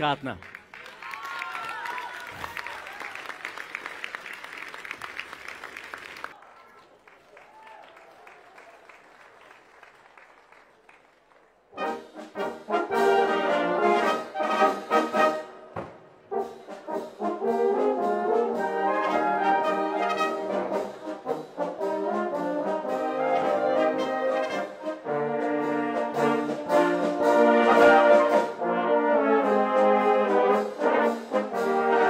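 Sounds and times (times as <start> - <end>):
tubas and brass: 11.7 - 32.0
wind band playing loudly: 11.7 - 32.0.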